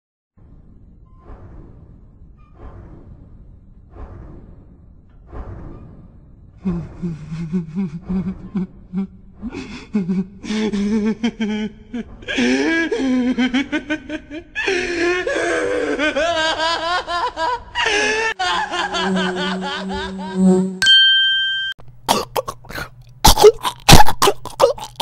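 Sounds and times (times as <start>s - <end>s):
man laughing maniacally: 6.6s - 20.8s.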